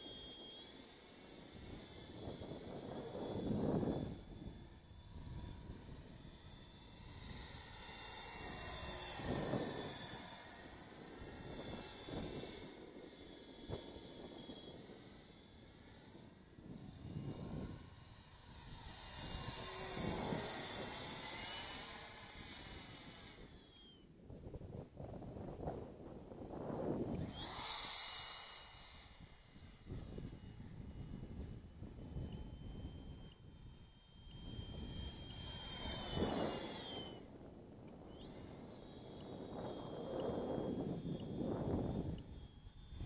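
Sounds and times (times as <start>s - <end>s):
electric ducted fan whining: 0.0s - 43.0s
low rushing surges: 26.5s - 32.2s.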